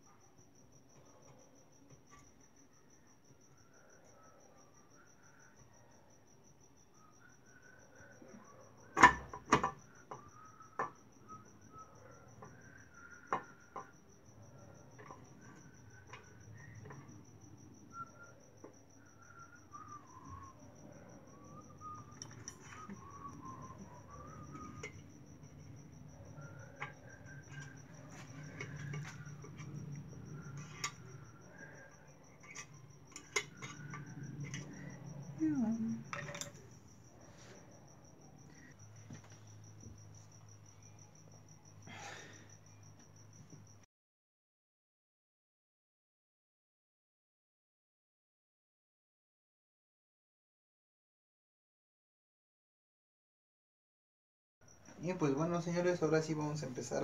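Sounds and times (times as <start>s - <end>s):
cricket chirping: 0.0s - 43.9s, 54.6s - 57.0s
metal cover knocks and clinks: 36.1s - 36.6s.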